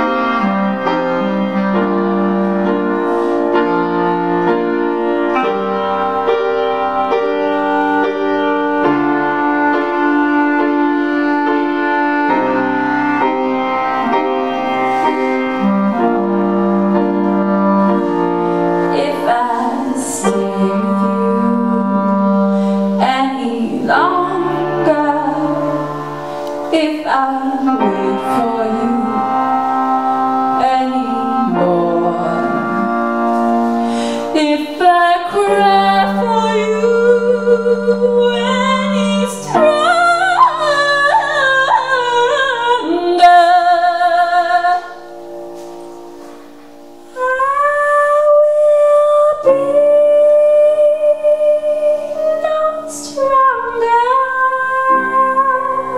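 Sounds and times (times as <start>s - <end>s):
clarinet solo: 0.0s - 55.9s
piano accompaniment: 0.0s - 55.9s
woman singing: 18.9s - 29.5s, 30.5s - 33.0s, 33.9s - 45.0s, 47.1s - 55.9s.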